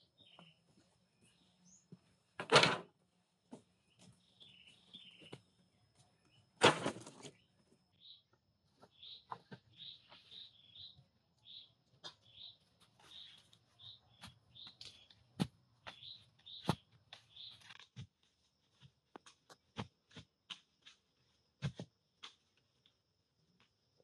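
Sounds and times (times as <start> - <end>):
bird chirping: 0.0 - 2.1, 3.8 - 6.6, 7.2 - 17.9.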